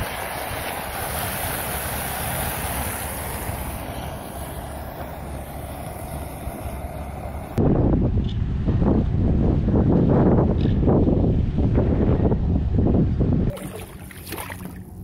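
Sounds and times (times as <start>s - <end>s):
floodwater rushing down storm drain: 0.0s - 7.6s, 13.5s - 15.0s
wind rumbling on microphone: 0.0s - 15.0s.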